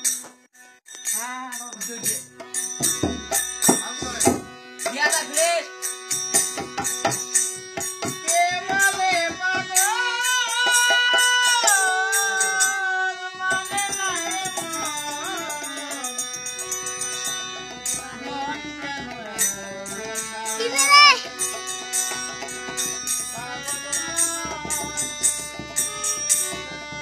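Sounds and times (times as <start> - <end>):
harmonium notes: 0.0 - 27.0
barrel drum beating: 2.8 - 5.1
man singing: 8.2 - 16.2, 17.9 - 21.4, 23.3 - 25.2.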